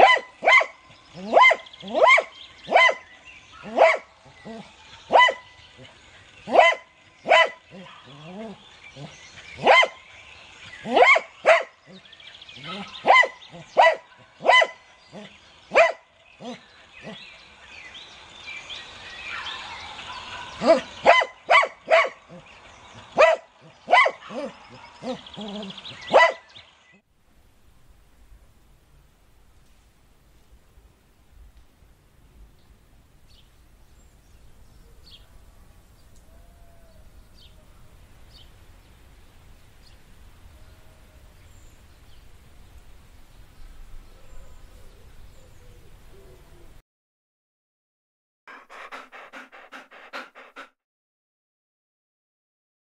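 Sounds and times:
dog barking: 0.0 - 5.5, 6.5 - 10.0, 10.8 - 11.8, 12.6 - 16.6, 20.6 - 22.5, 23.1 - 26.5
bird chirps: 0.0 - 27.0.

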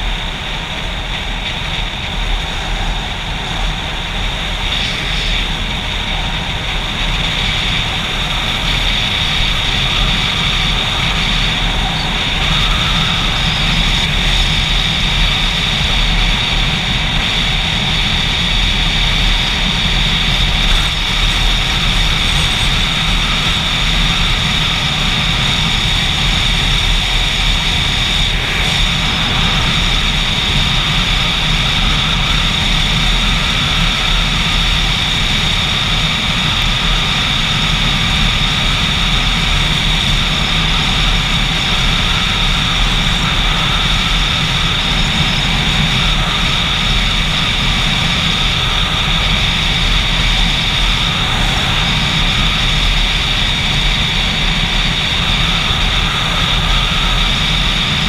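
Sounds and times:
motorcycle engine drone: 0.0 - 58.0
rushing noise: 0.0 - 58.0.

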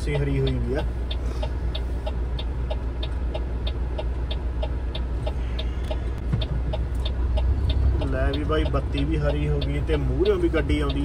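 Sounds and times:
truck engine idling: 0.0 - 11.0
turn signal ticking: 0.0 - 11.0.

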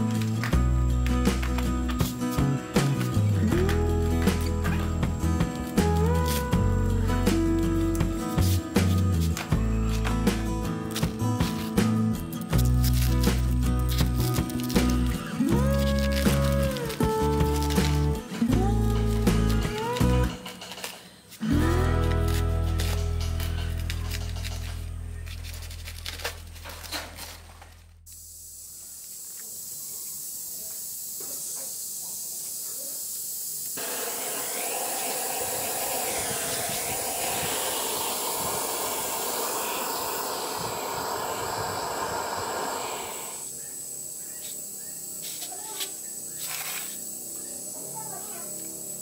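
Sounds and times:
steady hiss: 28.1 - 49.0.

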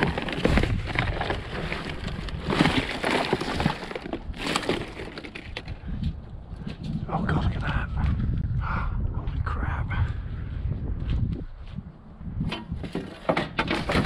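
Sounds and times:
debris scraping and knocking: 0.0 - 5.9, 12.4 - 14.0.

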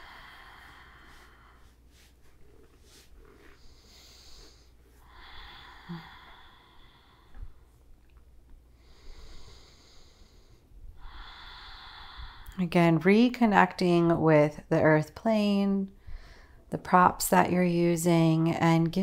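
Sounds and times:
woman breathing deeply: 0.0 - 7.9, 8.7 - 12.6, 16.0 - 16.7.

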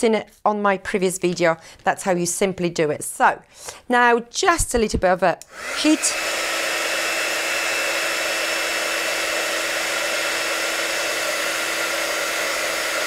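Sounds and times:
heat gun blowing: 5.4 - 13.0.

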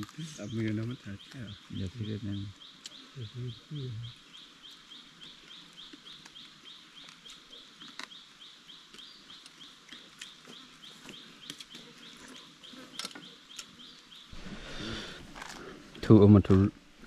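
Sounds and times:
faint high-pitched chirping: 0.0 - 15.2.

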